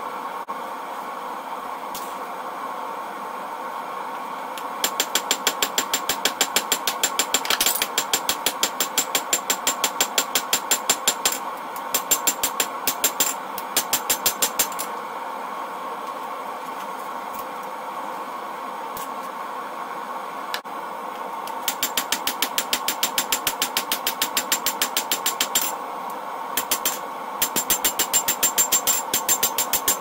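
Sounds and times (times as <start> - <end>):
hammer striking steel on anvil: 26.6 - 30.0.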